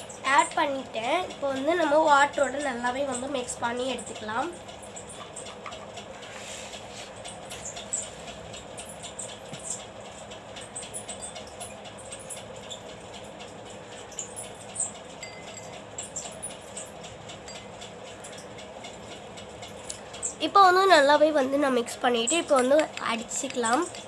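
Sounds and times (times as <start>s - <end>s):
faint background hum: 0.0s - 24.0s
stirring paint in glass bowl: 21.9s - 24.0s.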